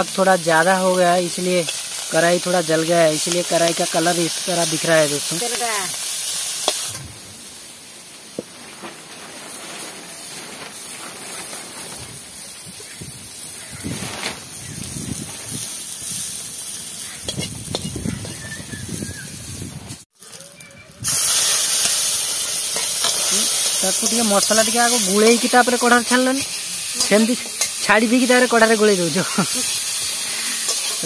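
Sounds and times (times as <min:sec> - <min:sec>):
faint frying: 0:00.0 - 0:31.0
loud hissing sizzle: 0:00.0 - 0:31.0
metal spatula scraping wok: 0:17.0 - 0:18.2, 0:21.0 - 0:31.0.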